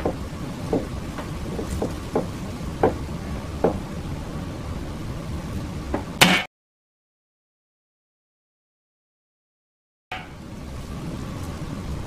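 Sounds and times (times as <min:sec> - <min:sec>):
soft knocks: 0:00.0 - 0:03.0
background hiss: 0:00.0 - 0:06.3, 0:10.2 - 0:12.0.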